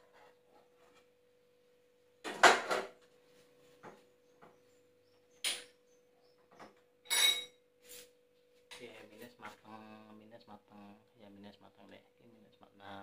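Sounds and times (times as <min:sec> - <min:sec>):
kitchenware clattering: 0:02.2 - 0:03.0, 0:07.0 - 0:07.6.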